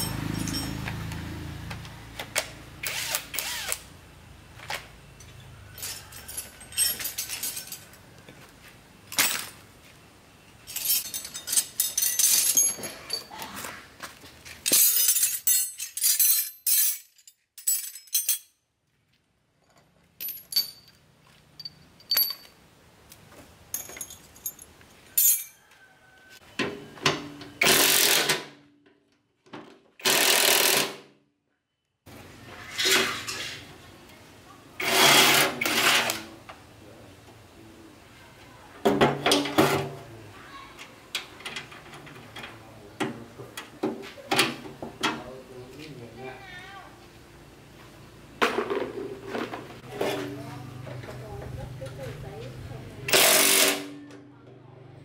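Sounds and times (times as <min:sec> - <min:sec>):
metal tools clinking: 0:00.0 - 0:01.1, 0:05.2 - 0:08.0, 0:10.6 - 0:13.6, 0:14.6 - 0:18.6, 0:19.6 - 0:22.6, 0:23.7 - 0:25.6
cordless drill on bolt: 0:02.8 - 0:03.9, 0:53.1 - 0:53.8.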